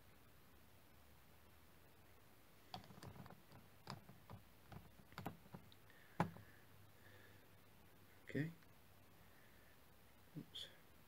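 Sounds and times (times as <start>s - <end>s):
plastic parts tapping: 2.7s - 6.5s.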